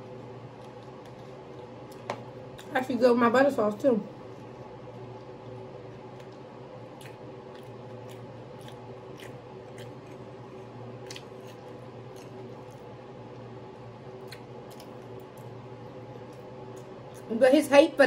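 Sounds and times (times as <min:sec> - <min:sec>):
steady low hum: 0:00.0 - 0:18.0
chewing: 0:04.3 - 0:13.5, 0:14.2 - 0:17.3.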